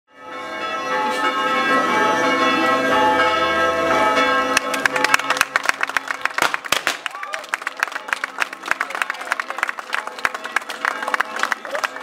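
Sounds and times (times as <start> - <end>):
church bells ringing: 0.1 - 6.3
applause: 4.6 - 12.0.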